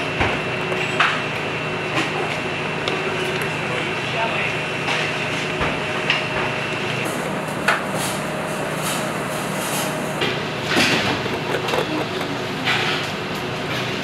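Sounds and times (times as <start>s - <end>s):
kitchen equipment hum: 0.0s - 14.0s
knocks and clatters: 10.7s - 13.0s.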